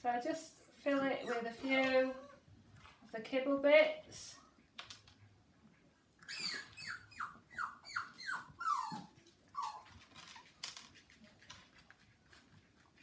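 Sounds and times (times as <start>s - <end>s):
puppy whining: 0.5s - 2.5s, 6.2s - 10.6s.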